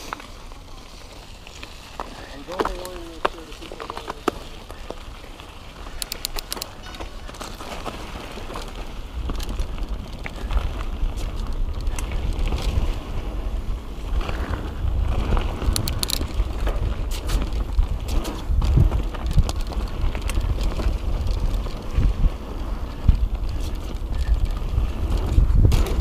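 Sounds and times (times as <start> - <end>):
bike tyres on dirt: 0.0 - 26.0
wind rumble on microphone: 0.8 - 26.0
rapid sharp clicks: 6.0 - 6.7.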